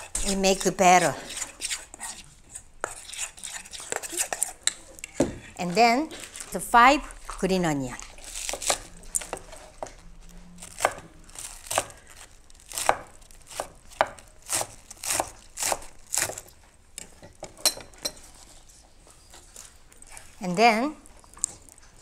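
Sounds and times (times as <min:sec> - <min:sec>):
knife chopping on wooden board: 0:12.7 - 0:16.4.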